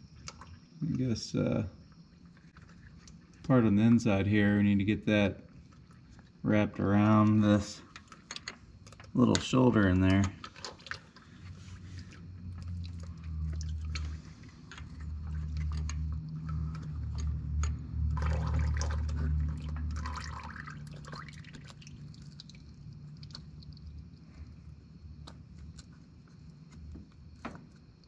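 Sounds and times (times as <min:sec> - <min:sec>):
wet squelching and rubbing: 0:10.4 - 0:27.4
low handling rumble: 0:11.3 - 0:20.9.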